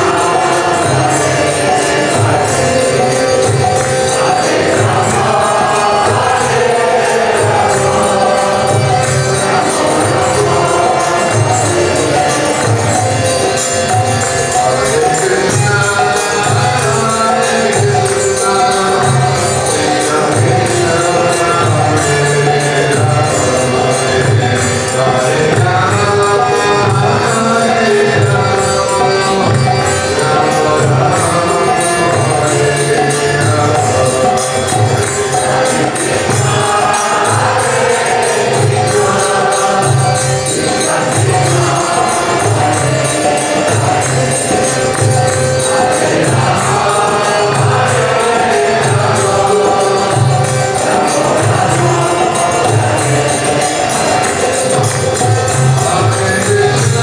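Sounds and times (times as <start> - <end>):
group chanting singing: 0.0 - 57.0
harmonium: 0.0 - 57.0.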